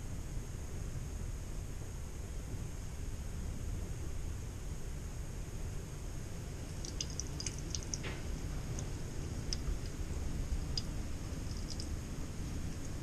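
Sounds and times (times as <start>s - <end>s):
small irregular ticks: 6.6s - 13.0s
water trickling into metal sink: 6.7s - 12.0s.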